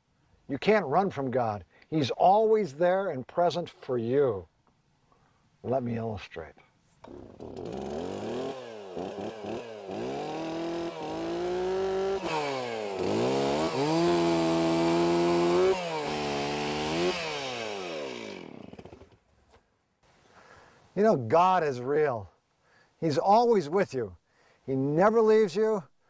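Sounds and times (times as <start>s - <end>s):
chainsaw revving and cutting: 7.0s - 19.2s.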